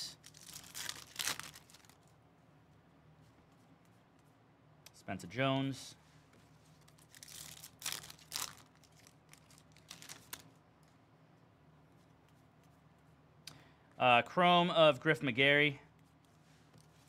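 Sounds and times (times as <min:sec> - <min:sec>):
wrapper crinkling and tearing: 0:00.2 - 0:02.1, 0:06.8 - 0:10.6.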